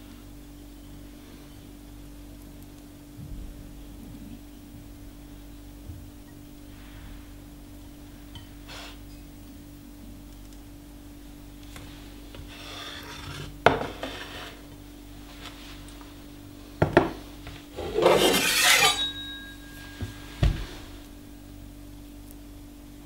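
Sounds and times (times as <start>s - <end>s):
faint steady hum: 0.0s - 23.0s
scraping rub: 12.3s - 14.7s, 17.8s - 20.3s
knocks on cutting board: 16.8s - 17.2s.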